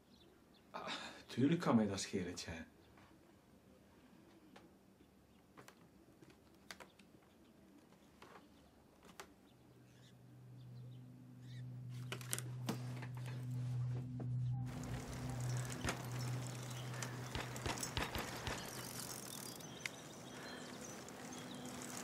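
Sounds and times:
small clicks: 5.6s - 8.4s
faint bird chirps: 9.4s - 12.4s, 14.2s - 22.0s
low steady drone music: 9.8s - 22.0s.

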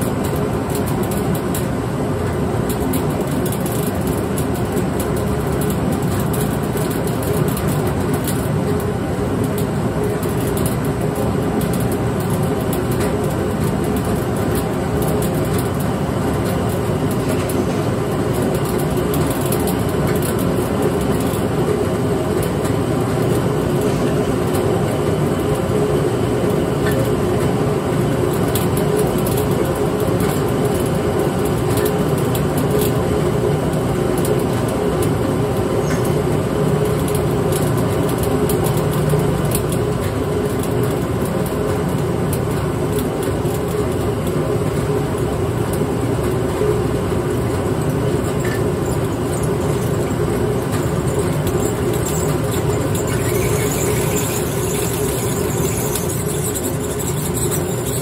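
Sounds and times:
malt mill grinding drone: 44.4s - 58.0s.

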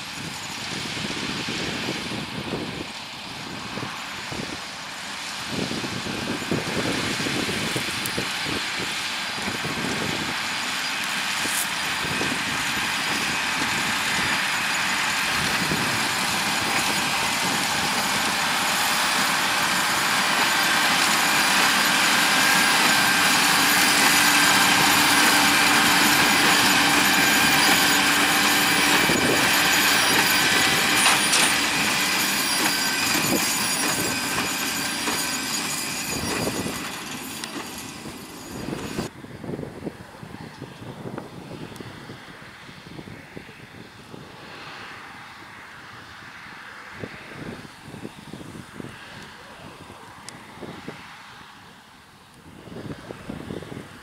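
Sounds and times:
tractor diesel engine under load: 0.0s - 39.2s.

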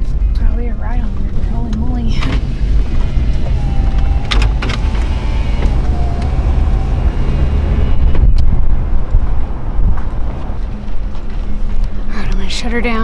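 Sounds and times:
vehicle engine and road rumble: 0.0s - 13.0s.

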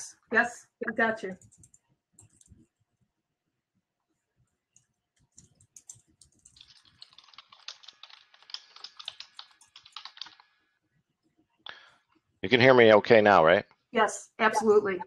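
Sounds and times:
typing on keyboard: 1.4s - 2.7s, 4.8s - 10.5s.

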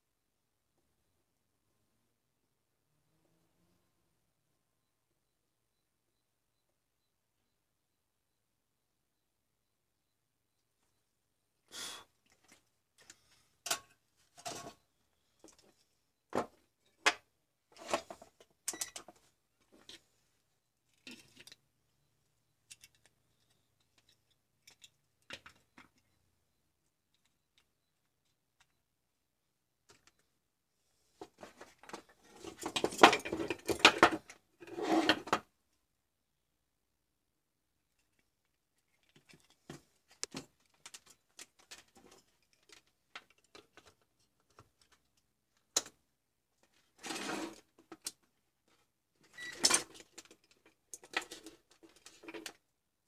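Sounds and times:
tools clattering on wooden workbench: 13.7s - 14.8s, 31.2s - 35.4s
cable and metal clips clattering: 49.2s - 52.6s.

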